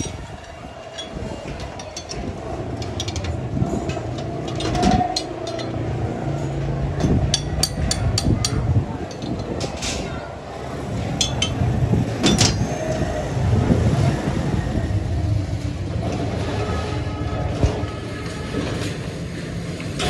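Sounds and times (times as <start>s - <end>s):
metal clinks and knocks: 0.0s - 10.0s, 11.0s - 13.0s
steady low rumble: 0.0s - 18.2s.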